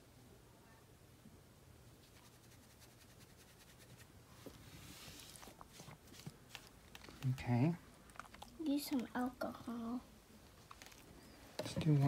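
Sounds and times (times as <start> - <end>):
faint rustling: 2.0 - 9.6, 10.4 - 12.0.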